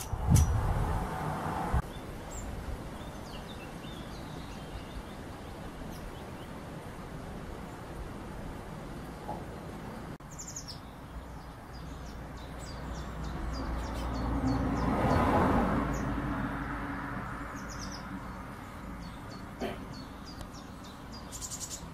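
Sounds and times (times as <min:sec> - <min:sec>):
birds calling high thin notes: 0:17.6 - 0:21.9.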